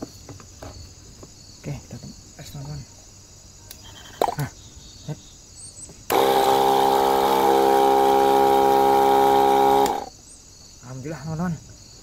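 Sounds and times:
pump motor whining: 6.1 - 10.1.

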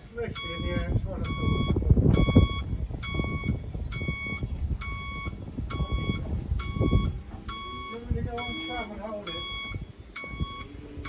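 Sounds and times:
electronic warning beeps: 0.2 - 11.0
low rumbling and knocking: 0.9 - 8.5.

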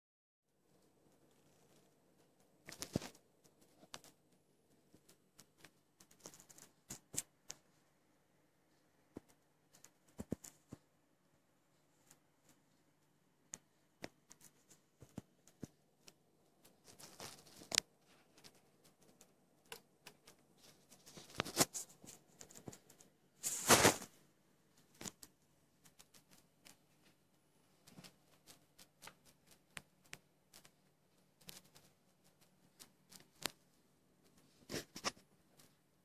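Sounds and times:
monitor clicks and crackles: 0.7 - 7.8, 11.8 - 36.0
short rustling bursts: 20.4 - 24.2.

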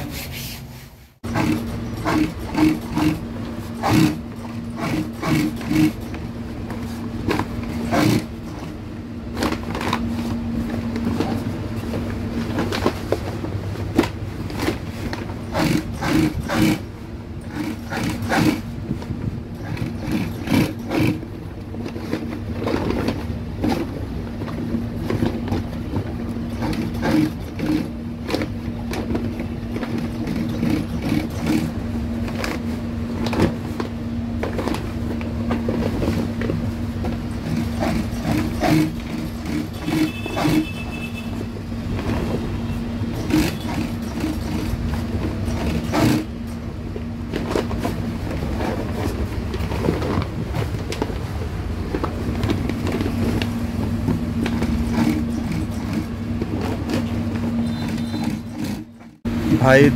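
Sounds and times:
industrial sewing machine running: 1.2 - 8.6, 14.4 - 18.8, 19.5 - 23.9, 26.2 - 33.4, 35.8 - 46.6, 52.4 - 59.9.

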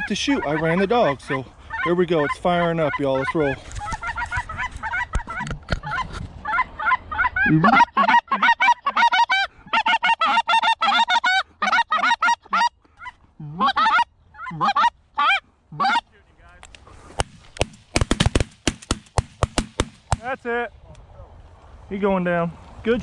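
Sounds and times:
geese honking: 0.0 - 16.1.

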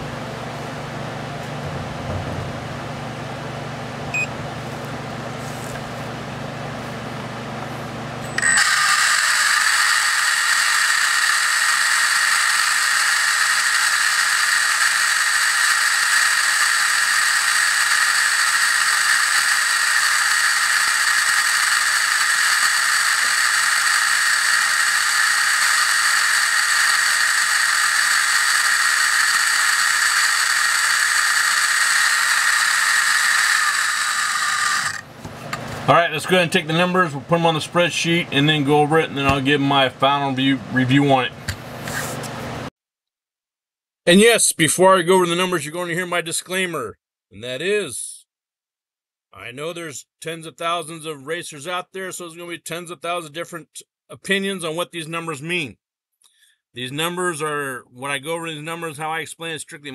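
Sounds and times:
electric motor high-pitched whine: 8.2 - 35.8.

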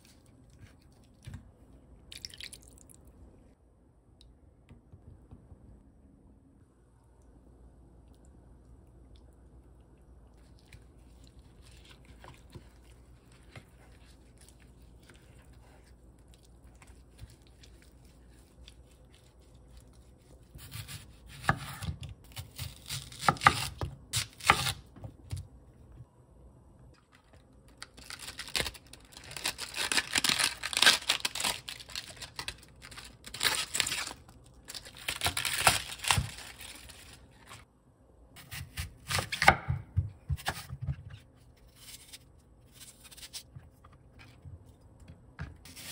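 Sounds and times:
knife cutting apple: 20.5 - 25.4, 38.4 - 43.6
knife slicing onion on board: 20.6 - 25.4, 38.4 - 41.2.

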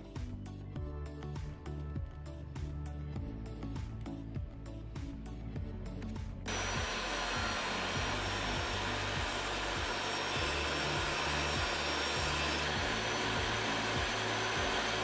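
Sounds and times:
table saw ripping board: 6.5 - 15.0.

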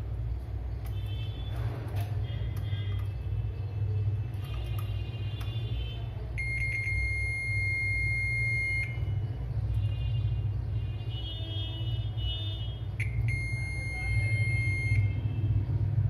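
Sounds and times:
multimeter continuity beep: 4.6 - 10.2, 12.3 - 15.4.

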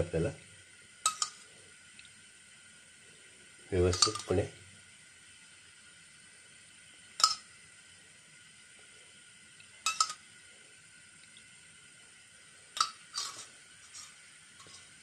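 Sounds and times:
spoon clinking against glass: 1.1 - 1.4, 4.0 - 4.3, 7.2 - 7.4, 9.9 - 10.2.

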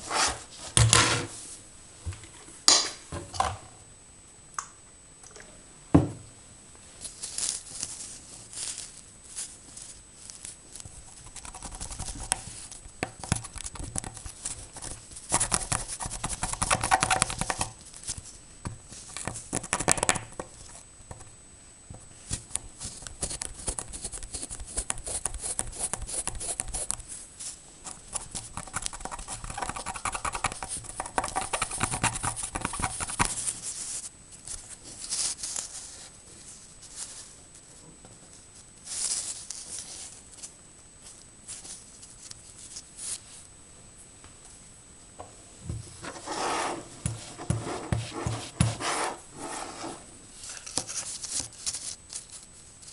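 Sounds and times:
cotton swab scrubbing circuit board: 10.4 - 17.8, 22.7 - 27.1, 27.9 - 34.7.

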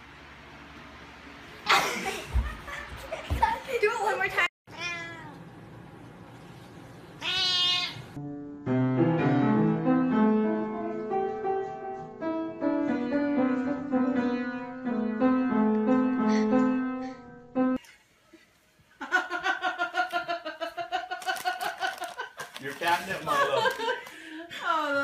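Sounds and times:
cat meowing: 4.7 - 5.4, 7.2 - 8.2
piano notes: 8.2 - 17.8.

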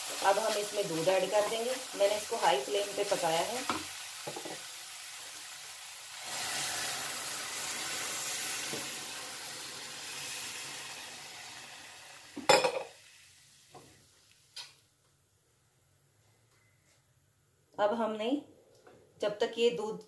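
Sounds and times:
milk sizzling in hot pan: 0.0 - 14.8.

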